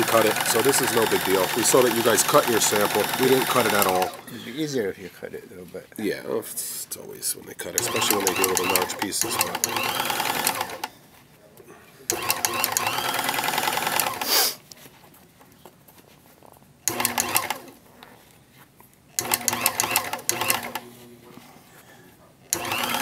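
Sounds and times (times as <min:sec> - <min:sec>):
carpet serger stitching: 0:00.0 - 0:04.4, 0:07.8 - 0:10.9, 0:12.1 - 0:14.5, 0:16.9 - 0:17.8, 0:19.2 - 0:20.9, 0:22.5 - 0:23.0.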